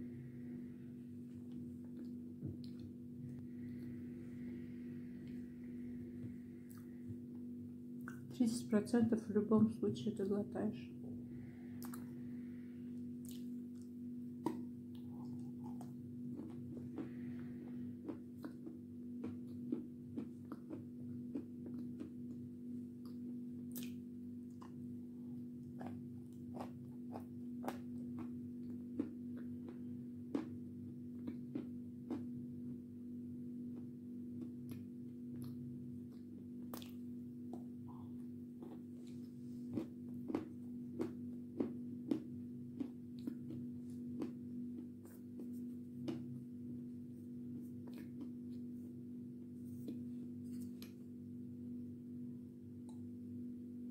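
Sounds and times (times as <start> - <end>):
steady low hum: 0.0 - 53.9
chalk crunching when chewed: 11.8 - 12.1, 13.2 - 22.4, 25.6 - 32.4, 34.4 - 37.7, 38.6 - 46.4, 47.6 - 48.8.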